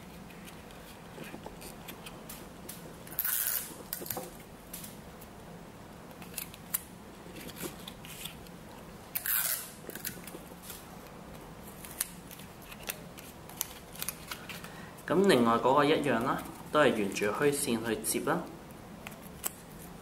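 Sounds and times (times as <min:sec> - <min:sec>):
paper card crinkling and clicking: 0:09.9 - 0:14.8.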